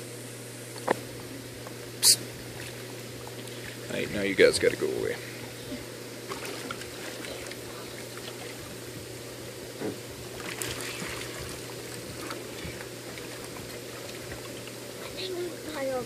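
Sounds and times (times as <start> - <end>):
low hum: 0.0 - 16.0
water trickling and churning: 6.2 - 9.2, 10.2 - 16.0.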